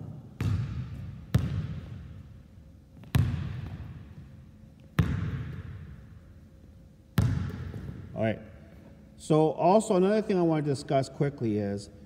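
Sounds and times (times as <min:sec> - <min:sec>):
basketball bouncing on hardwood: 0:00.4 - 0:02.0, 0:03.0 - 0:03.9, 0:05.0 - 0:05.7, 0:07.2 - 0:08.0.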